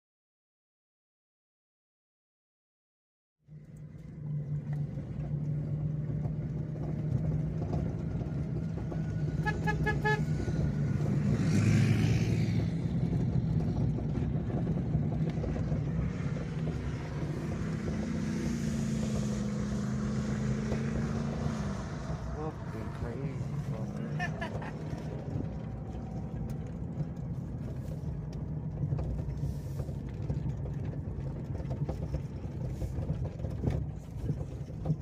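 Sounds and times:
truck engine running: 3.5 - 35.0
short horn toots: 9.4 - 10.3.

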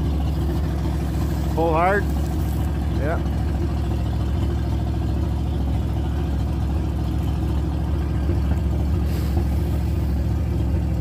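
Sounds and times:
engine idling: 0.0 - 11.0
short hiss: 9.0 - 10.1.

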